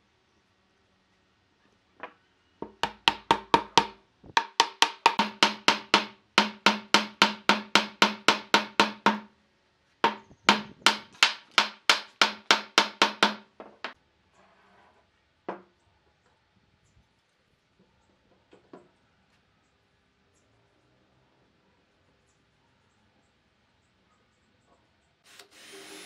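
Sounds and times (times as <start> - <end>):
knocking on wood: 2.6 - 9.3, 10.0 - 14.0.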